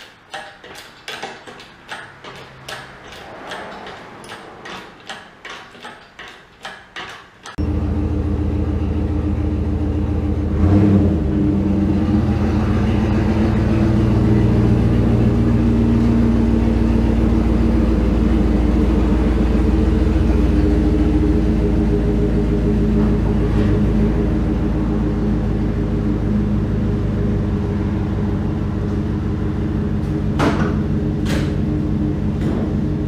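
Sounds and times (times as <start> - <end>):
truck engine idling: 11.3 - 33.0.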